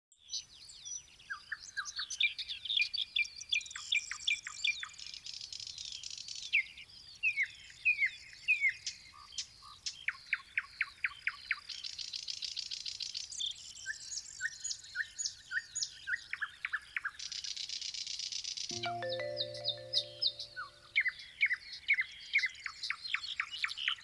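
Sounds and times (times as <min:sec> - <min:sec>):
songbirds singing: 0:00.2 - 0:12.2
buzzy high bird trill: 0:18.7 - 0:20.8.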